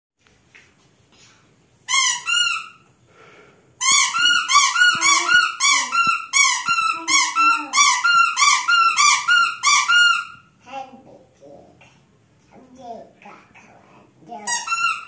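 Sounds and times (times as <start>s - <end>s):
squeaky rubber toy: 1.9s - 2.8s, 3.8s - 10.5s, 14.4s - 15.0s.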